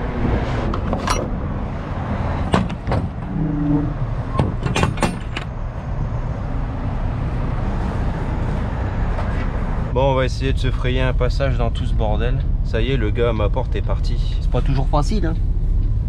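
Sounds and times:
metal door latch clanking: 2.4s - 3.3s, 4.3s - 5.6s.

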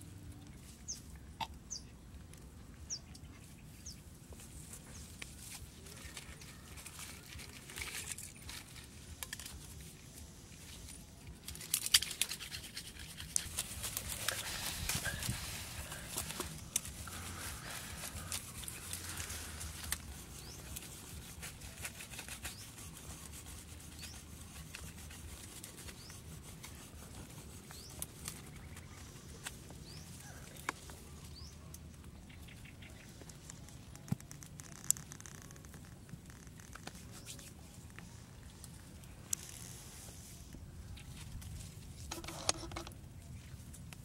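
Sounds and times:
twig fire crackling: 4.4s - 44.0s
sharp snaps and pops: 33.0s - 39.7s.

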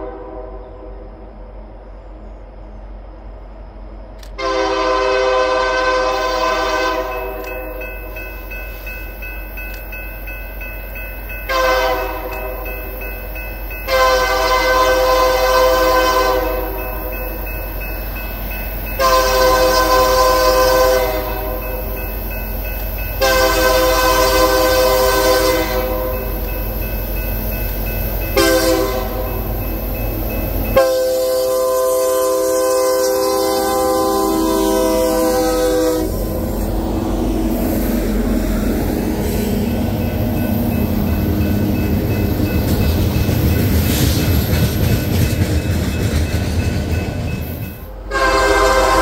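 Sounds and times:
low train rumble: 0.0s - 49.0s
locomotive horn chord blasts: 4.4s - 7.8s, 11.5s - 12.6s, 13.9s - 17.0s, 19.0s - 21.8s, 23.2s - 26.4s, 28.4s - 29.5s, 30.8s - 36.6s, 48.1s - 49.0s.

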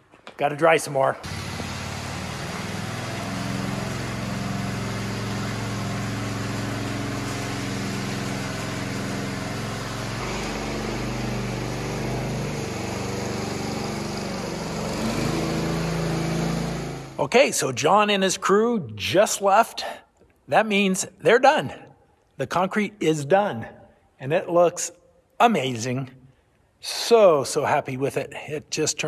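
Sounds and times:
small gas engine running: 1.2s - 17.3s.

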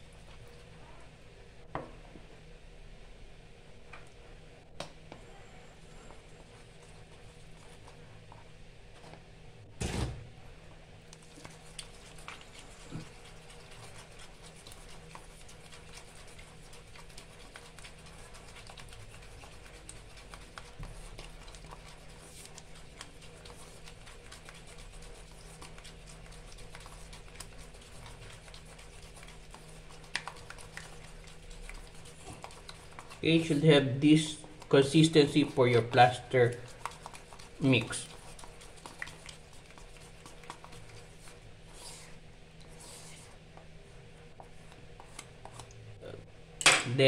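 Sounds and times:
spatula scraping plaster bowl: 11.3s - 43.4s.

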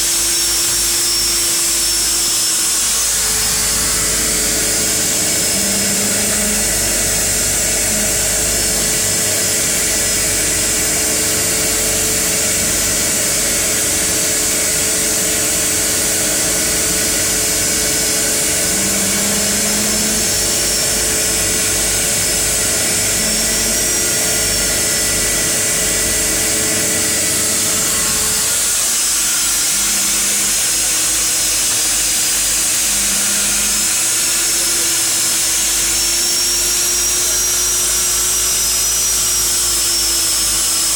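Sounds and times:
propeller engine whine and drone: 0.0s - 40.9s
tone rising in pitch: 3.2s - 13.4s.

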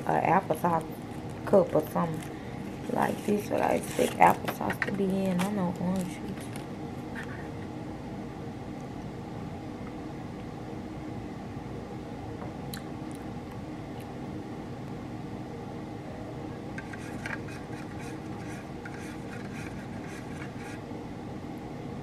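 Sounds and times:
low room hum: 0.0s - 22.0s
plastic cup crinkling: 1.0s - 6.7s.

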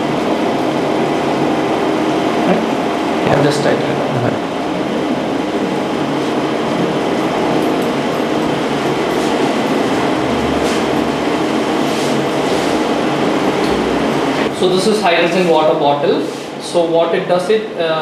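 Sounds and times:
machine humming: 0.0s - 18.0s.

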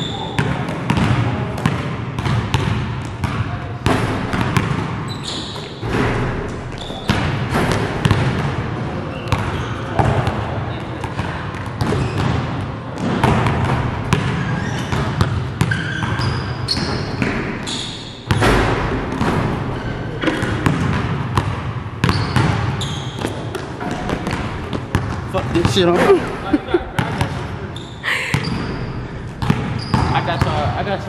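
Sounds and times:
basketball bouncing on gym floor: 0.0s - 26.3s, 28.1s - 30.7s
short high squeaks: 5.1s - 5.8s, 27.7s - 29.0s.

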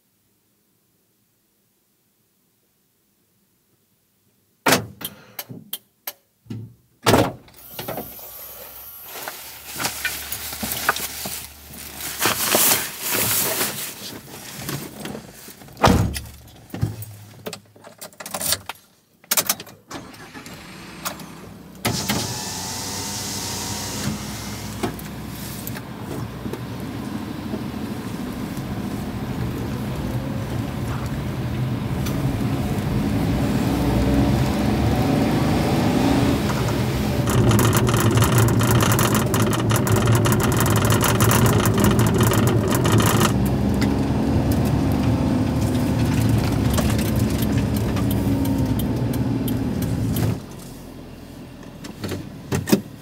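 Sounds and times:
truck engine running: 20.2s - 35.1s, 36.4s - 51.8s.

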